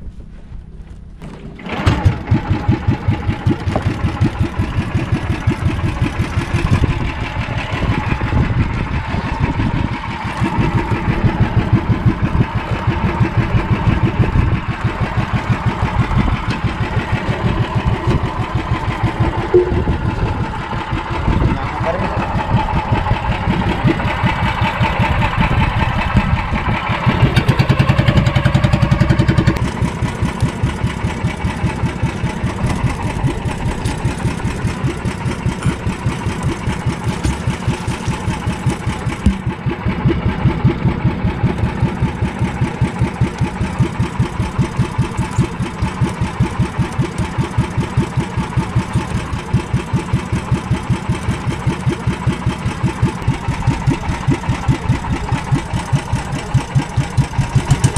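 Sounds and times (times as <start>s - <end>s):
boat engine chugging: 1.4s - 57.9s.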